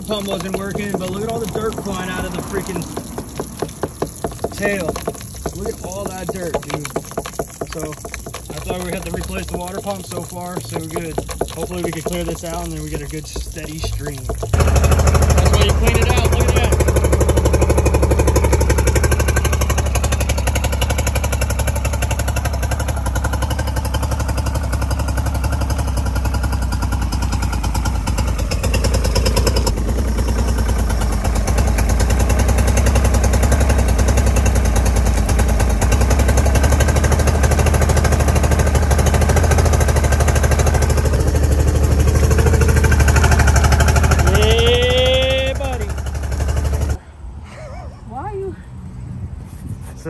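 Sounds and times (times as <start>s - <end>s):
outboard motor running: 0.0s - 47.0s.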